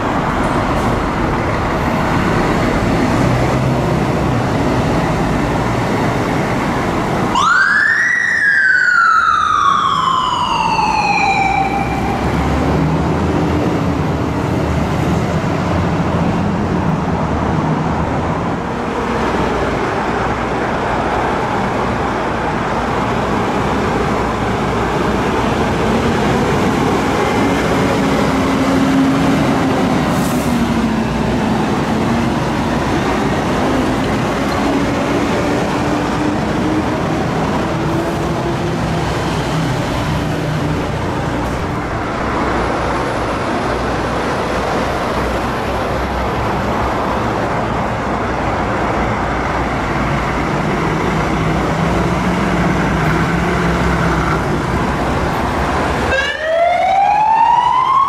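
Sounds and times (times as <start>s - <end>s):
fire truck engines running: 0.0s - 58.0s
fire engine siren wailing: 6.9s - 13.2s, 49.2s - 58.0s.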